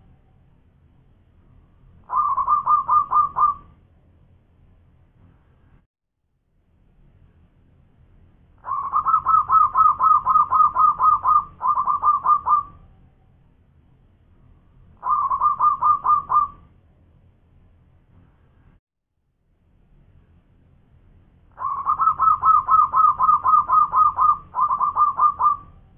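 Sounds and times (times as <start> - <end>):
dove cooing: 2.1 - 3.7, 8.6 - 12.8, 15.0 - 16.7, 21.6 - 25.8.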